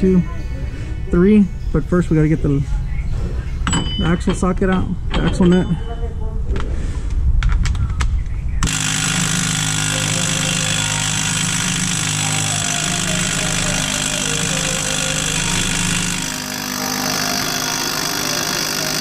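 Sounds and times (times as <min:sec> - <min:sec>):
impact wrench hammering: 0:08.6 - 0:19.0.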